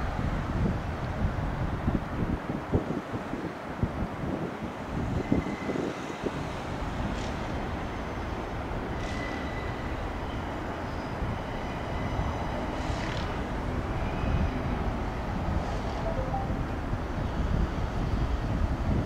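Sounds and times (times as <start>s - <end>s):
faint high thin tones: 16.0s - 16.8s.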